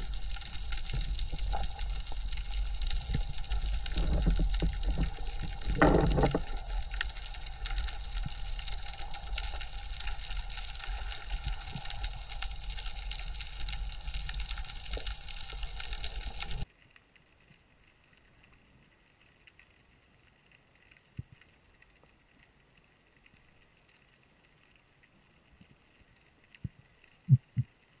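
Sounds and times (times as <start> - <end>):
underwater hiss: 0.0 - 16.6
water rushing over camera: 0.0 - 16.6
faint ticks: 0.0 - 28.0.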